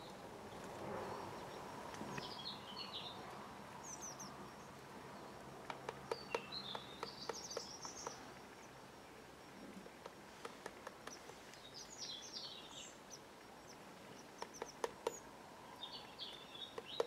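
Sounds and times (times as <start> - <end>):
small birds chirping: 0.0 - 17.0
bird pecking at feeder: 10.0 - 11.4, 14.4 - 15.2.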